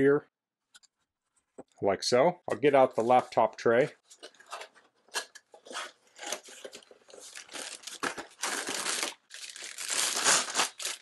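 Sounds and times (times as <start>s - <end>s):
cardboard packaging being opened: 4.1s - 11.0s
plastic bag crinkling: 6.4s - 11.0s.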